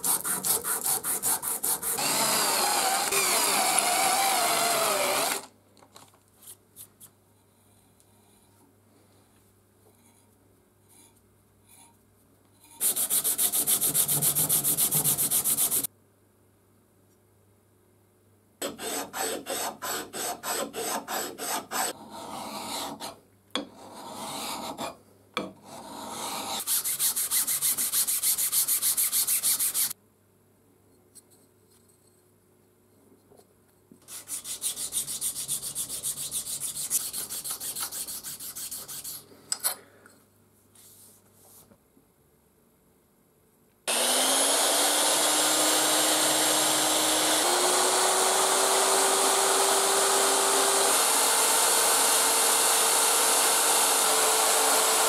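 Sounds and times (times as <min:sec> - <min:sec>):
file rasping on metal: 0:00.0 - 0:02.2, 0:12.8 - 0:15.9, 0:18.6 - 0:23.2, 0:23.8 - 0:25.0, 0:34.1 - 0:39.2.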